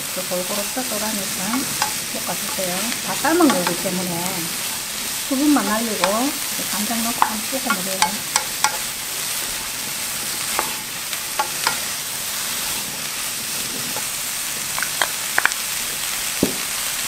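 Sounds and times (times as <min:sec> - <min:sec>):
stems sizzling in oil: 0:00.0 - 0:17.0
wooden spoons clicking on pan: 0:00.5 - 0:12.0, 0:14.7 - 0:15.7.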